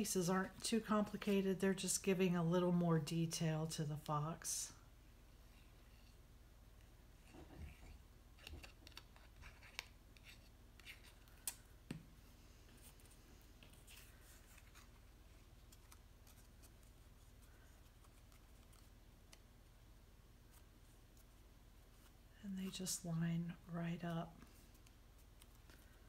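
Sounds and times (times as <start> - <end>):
soft rustles of cardstock: 6.8 - 19.7, 20.4 - 26.0.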